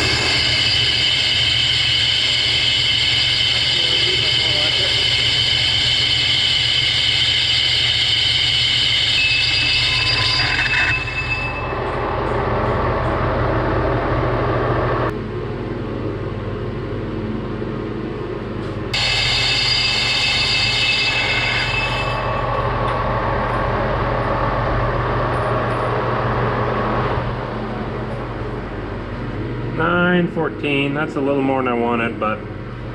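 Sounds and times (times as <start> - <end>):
high ringing screech of cutting: 0.0 - 12.0, 19.0 - 22.6
lathe humming: 0.0 - 15.1, 18.9 - 31.4.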